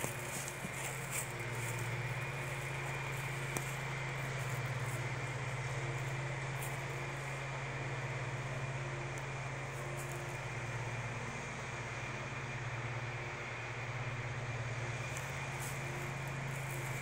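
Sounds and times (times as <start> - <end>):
engine humming steadily: 0.0 - 17.0.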